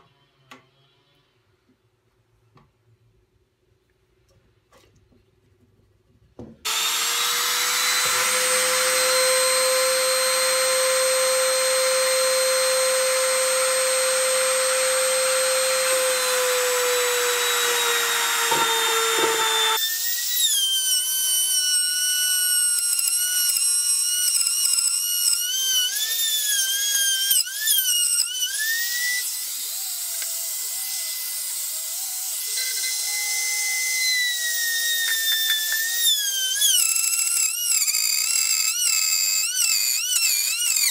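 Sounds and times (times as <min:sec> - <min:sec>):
router bit cutting wood: 0:06.6 - 0:40.9
trim router high whine: 0:06.7 - 0:37.4.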